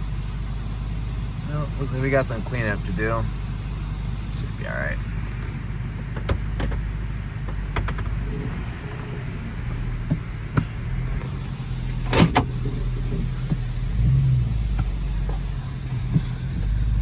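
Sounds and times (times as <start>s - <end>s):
vehicle engine running: 0.0s - 17.0s
sharp clicks and knocks: 6.0s - 8.2s.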